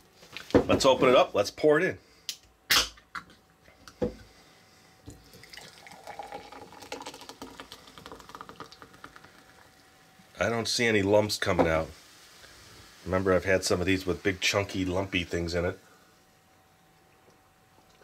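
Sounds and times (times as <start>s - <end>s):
soda pouring and fizzing: 5.1s - 10.5s.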